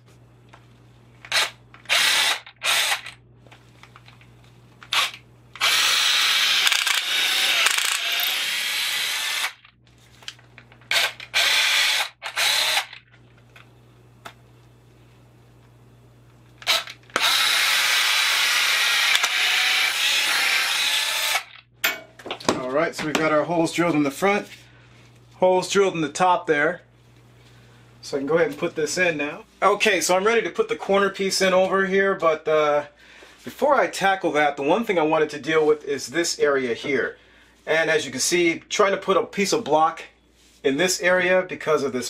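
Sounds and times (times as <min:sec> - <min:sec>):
power drill boring into wood: 0:01.3 - 0:03.1, 0:04.9 - 0:09.6, 0:10.9 - 0:12.9, 0:16.6 - 0:21.5.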